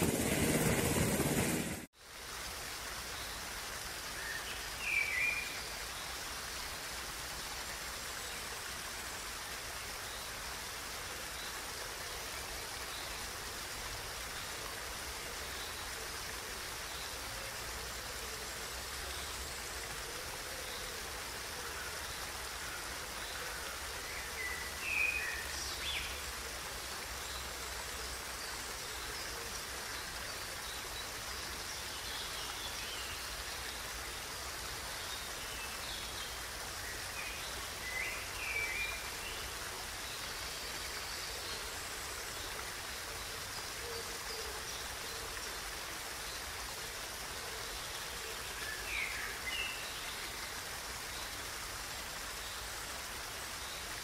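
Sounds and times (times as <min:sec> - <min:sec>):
waterfall splashing: 0:00.0 - 0:54.0.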